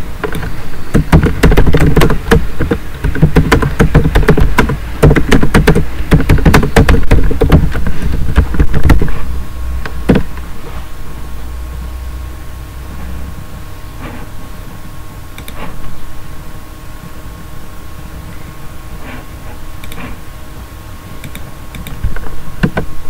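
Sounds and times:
low steady hum: 0.0 - 23.0
typing on computer keyboard: 0.2 - 9.1
single click: 15.4 - 15.7.

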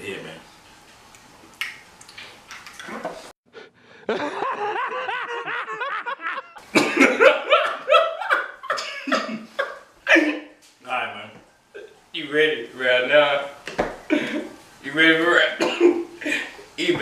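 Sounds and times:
men laughing: 3.9 - 10.5, 14.1 - 14.6.

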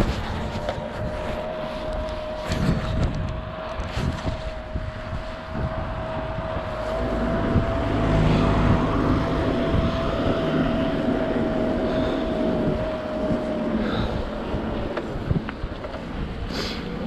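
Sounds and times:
bike tyre and frame rumbling: 0.0 - 17.0
thin steady whine: 0.0 - 17.0
wind on microphone: 0.0 - 17.0.

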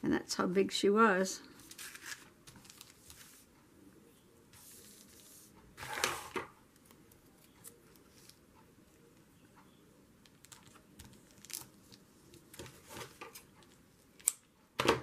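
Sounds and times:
paper rustling: 1.5 - 3.6, 4.5 - 8.4.

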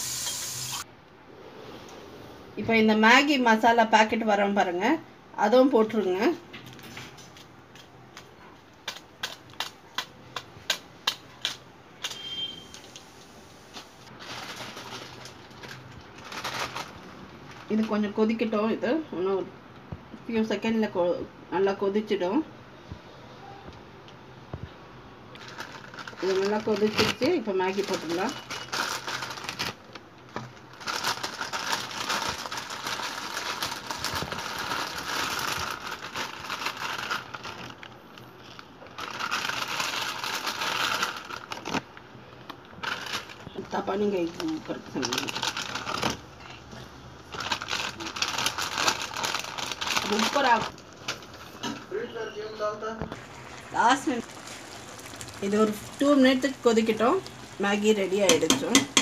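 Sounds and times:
broth boiling hiss: 0.0 - 2.6, 53.1 - 59.0.

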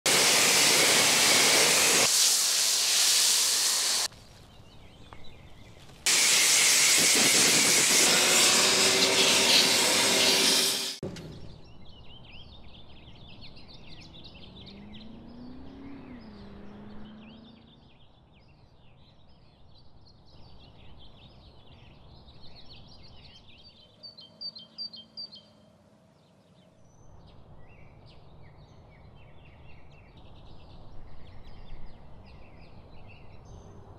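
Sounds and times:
pressure washer spraying: 0.1 - 4.1, 6.1 - 11.0
birds chirping: 11.1 - 33.9.

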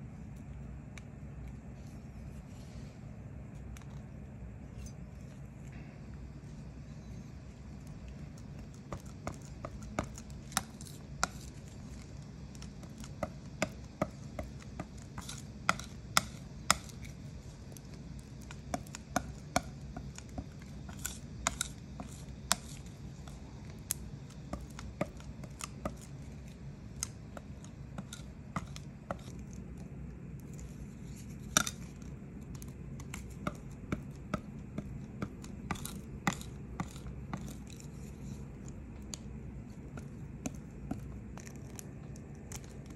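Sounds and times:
steady low hum: 0.0 - 42.9
ink knife tapping and scraping: 8.0 - 29.8, 30.4 - 39.2, 39.9 - 42.9.

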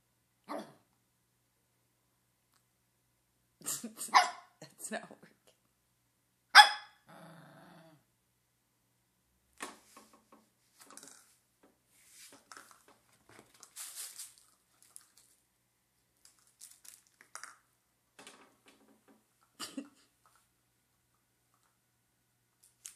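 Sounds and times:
dog rustling fabric toy: 11.9 - 15.3.

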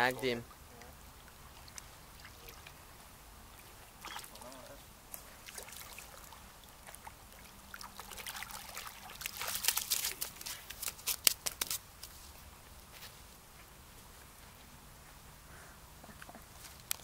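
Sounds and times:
fish splashing in water: 5.4 - 11.7
fish slapping on wet shore: 7.8 - 12.1.

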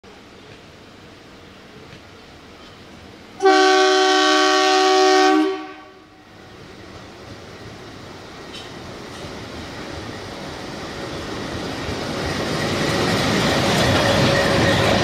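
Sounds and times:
locomotive horn blast: 3.4 - 6.2
locomotive rumble: 6.4 - 15.0.

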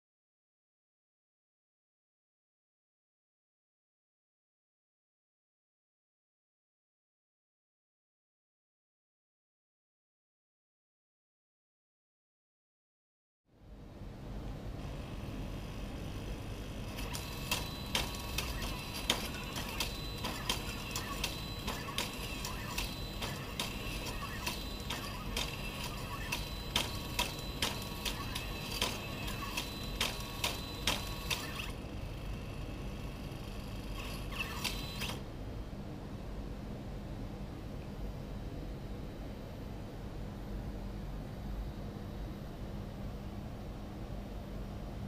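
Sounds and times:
stepper motors whining: 14.8 - 35.2
motor clicks: 14.9 - 35.2.

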